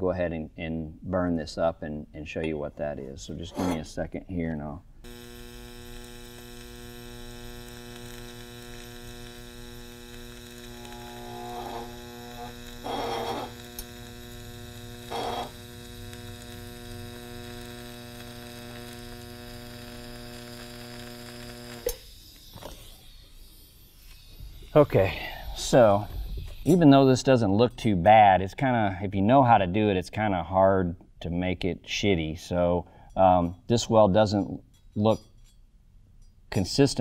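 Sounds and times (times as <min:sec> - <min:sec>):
welder click: 0:05.0 - 0:23.1
welding arc buzzing hum: 0:05.0 - 0:27.6.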